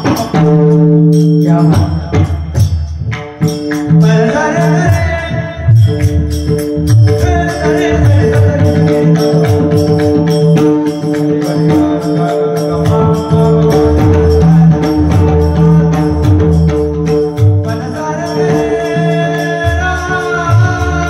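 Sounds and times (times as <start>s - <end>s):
drum strokes: 0.0s - 21.0s
hand cymbals jingling: 0.0s - 21.0s.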